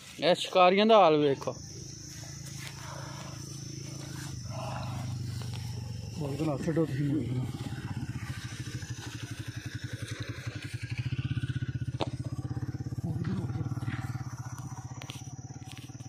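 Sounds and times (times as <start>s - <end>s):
engine running with even throb: 0.0s - 16.0s.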